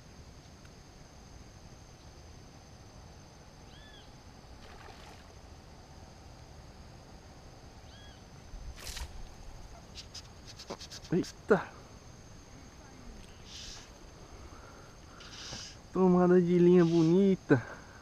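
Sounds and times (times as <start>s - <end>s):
high-pitched insect drone: 0.0s - 18.0s
bird chirps: 7.9s - 8.2s.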